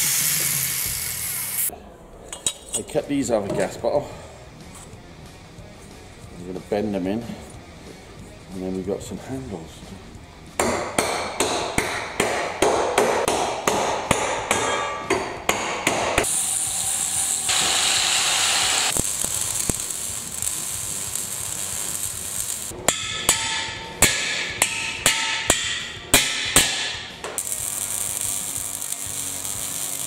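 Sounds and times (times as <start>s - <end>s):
welding arc hiss and crackle: 0.0s - 1.7s, 16.2s - 22.8s, 26.6s - 30.0s.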